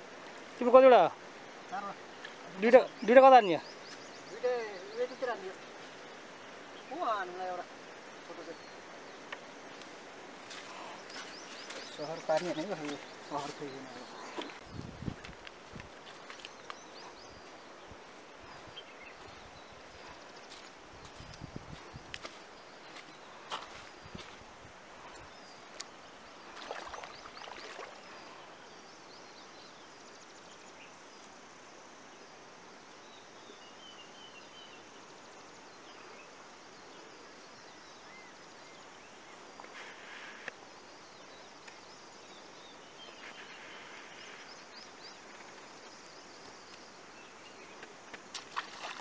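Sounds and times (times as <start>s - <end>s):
river rushing: 22.2s - 28.8s, 42.8s - 49.0s.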